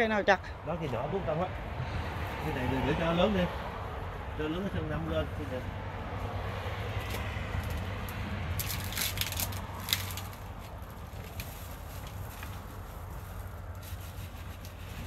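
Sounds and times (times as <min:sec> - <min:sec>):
leaves rustling and crackling: 0:05.3 - 0:15.0.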